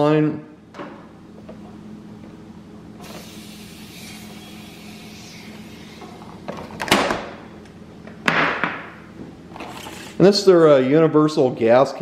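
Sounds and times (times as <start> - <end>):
steady low hum: 0.0 - 12.0
loud scrape in metal drawer: 9.6 - 10.2.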